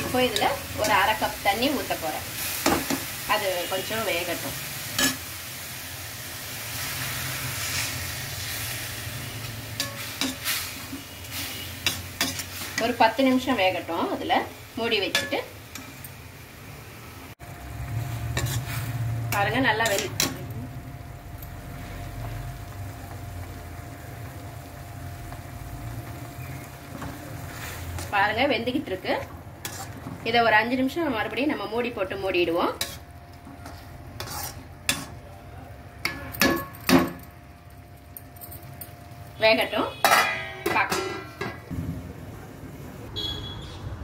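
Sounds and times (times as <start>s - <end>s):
sizzling and hissing in pan: 0.0s - 35.3s
metal spoon clinking on pan: 15.1s - 16.0s, 36.0s - 37.3s, 40.0s - 41.6s.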